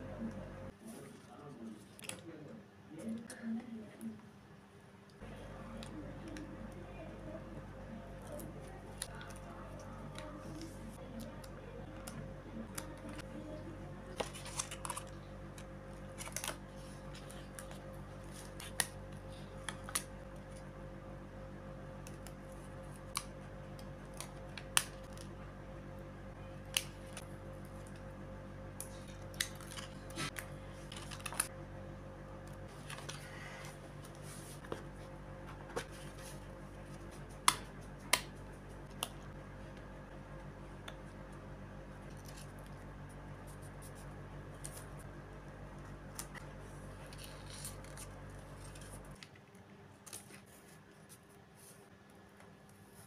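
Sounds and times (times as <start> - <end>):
steady background hum: 0.0 - 53.0
plastic sticker sheets crackling: 5.2 - 20.6, 28.8 - 31.5, 46.1 - 49.4.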